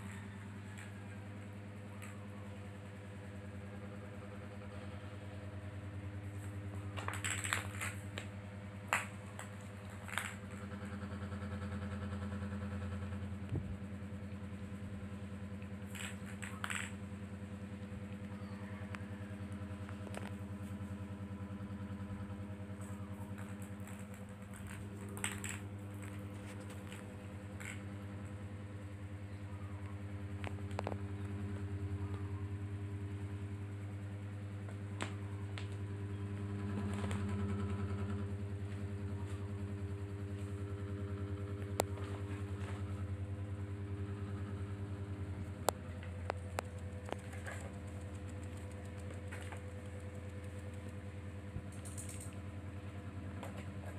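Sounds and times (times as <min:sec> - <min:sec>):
low mechanical hum: 0:00.0 - 0:53.9
ball clicking in plastic track toy: 0:15.8 - 0:17.0, 0:23.2 - 0:28.2.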